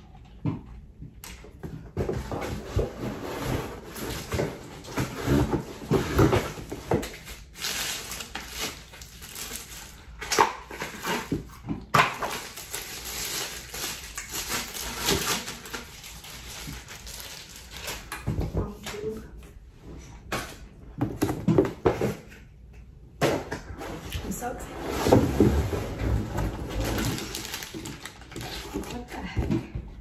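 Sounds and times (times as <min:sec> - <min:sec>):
packaging rustling and crinkling: 0:02.0 - 0:19.1, 0:24.9 - 0:29.2.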